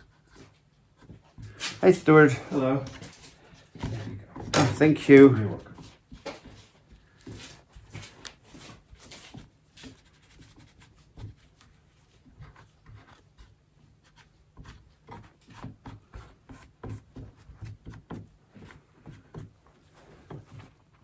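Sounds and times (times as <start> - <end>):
scratchy rubbing strokes: 5.3 - 17.8.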